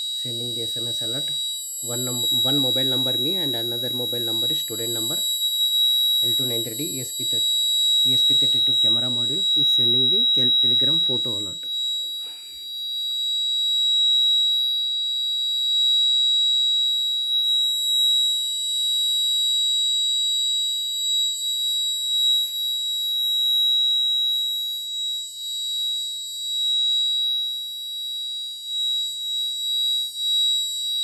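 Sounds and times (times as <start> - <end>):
high-pitched alarm buzzer: 0.0 - 31.0.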